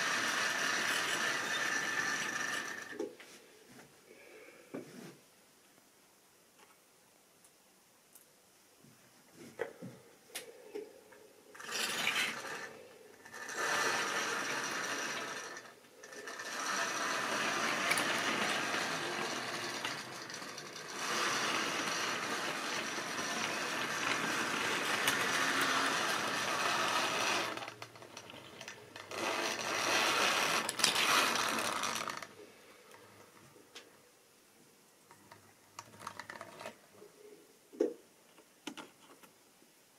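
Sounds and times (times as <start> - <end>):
model train motor whirring: 0.0 - 3.0, 11.5 - 32.3
wheels rattling over rails: 0.0 - 3.0, 11.6 - 32.3.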